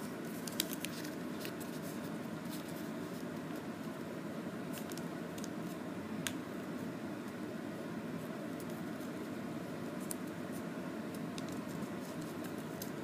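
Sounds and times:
paper rustling and crinkling: 0.2 - 3.7, 10.0 - 13.0.

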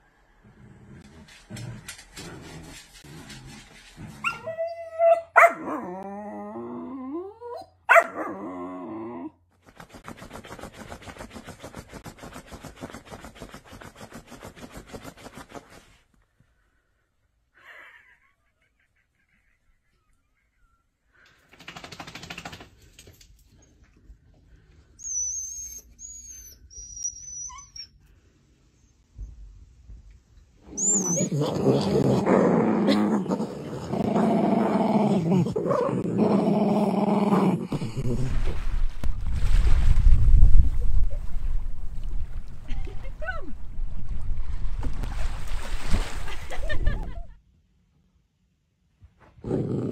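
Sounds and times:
dog growling: 31.0 - 38.5, 49.4 - 49.9.

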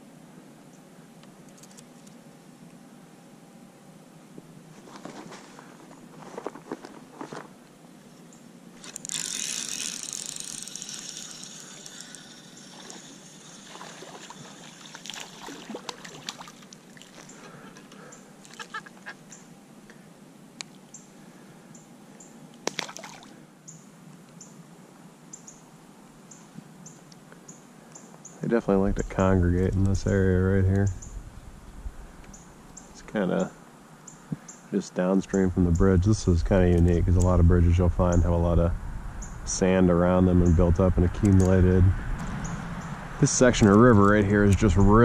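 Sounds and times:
water splashing and sloshing: 12.7 - 19.1, 22.6 - 23.4.

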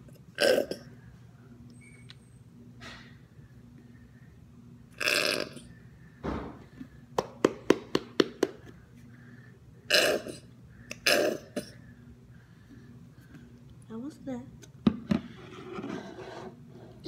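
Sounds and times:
boy making harsh throat noises: 0.3 - 0.9, 5.0 - 5.7, 9.9 - 11.8.

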